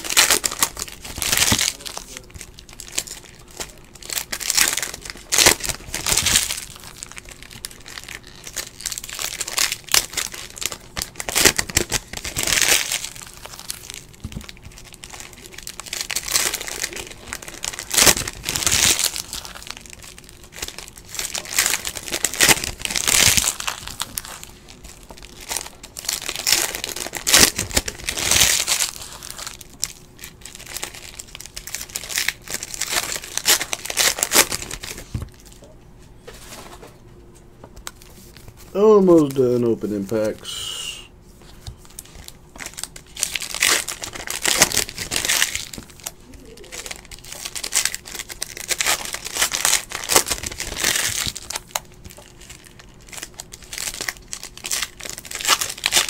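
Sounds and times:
foil wrappers tearing and crinkling: 0.0 - 35.6, 37.8 - 40.5, 41.8 - 56.0.

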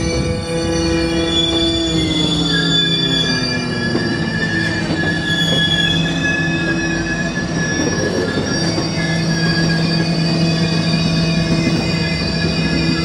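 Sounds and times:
train wheels squealing: 0.0 - 13.0.

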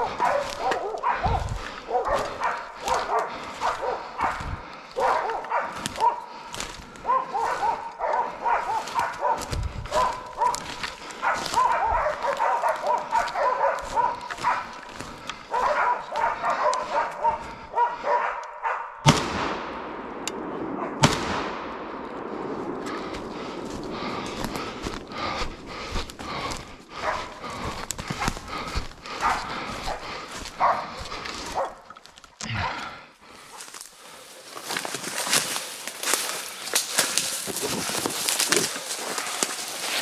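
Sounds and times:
dogs barking rapidly: 0.0 - 19.0, 26.3 - 31.9
gunshots with echo: 19.0 - 29.9.

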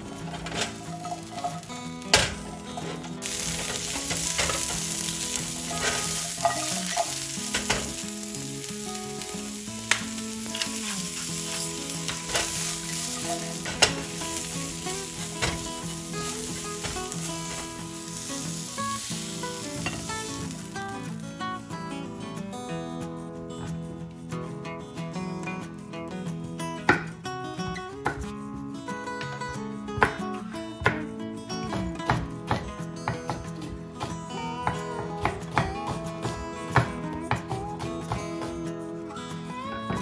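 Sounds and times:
vegetables sizzling in frying pan: 0.0 - 21.8.

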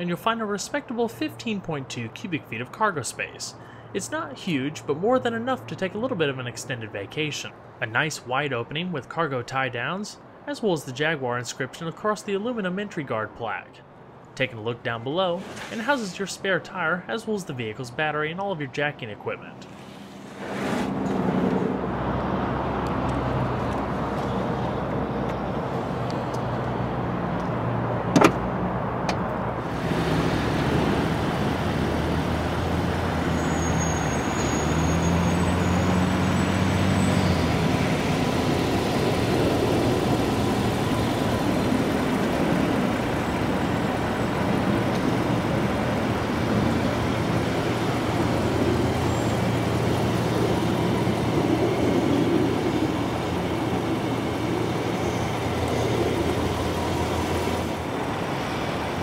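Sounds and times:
outdoor background noise: 0.0 - 59.0
vehicle engine hum: 17.4 - 59.0.

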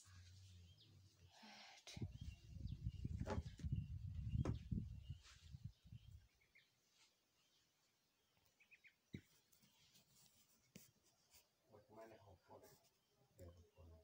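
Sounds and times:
low rumble on microphone: 2.0 - 6.2.

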